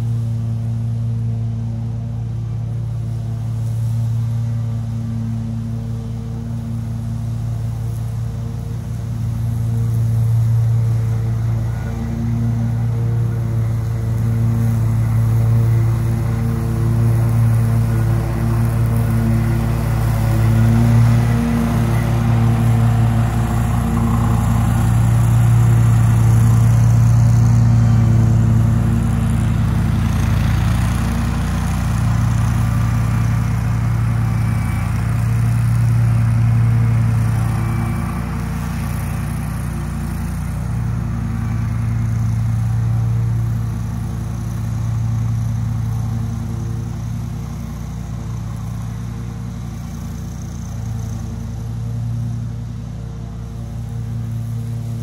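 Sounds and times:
mower engine running: 0.0 - 55.0.

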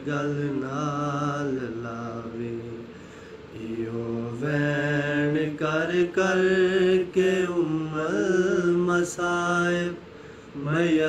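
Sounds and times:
men chanting a lament: 3.5 - 11.0.

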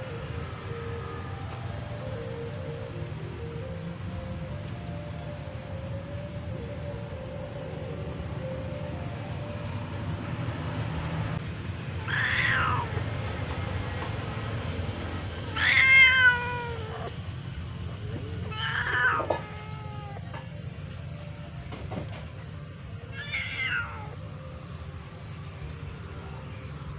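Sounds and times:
cat meowing: 12.0 - 13.0, 15.5 - 17.1, 18.5 - 20.3, 23.1 - 24.2.

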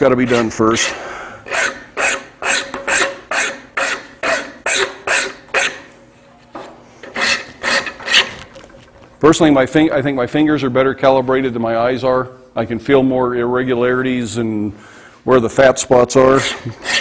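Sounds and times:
rasp scraping wood: 0.3 - 5.9, 7.0 - 8.4, 16.4 - 17.0.

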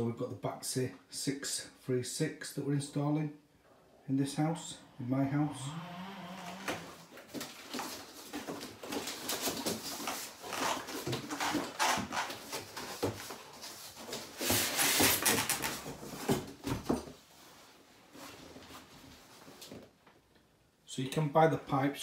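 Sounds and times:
cardboard rustling and scraping: 6.4 - 17.0.

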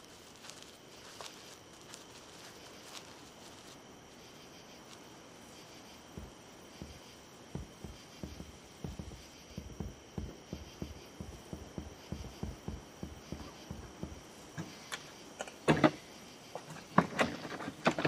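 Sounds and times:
soft footsteps walking: 0.0 - 15.3
knocks and rattles of door: 6.2 - 14.7.

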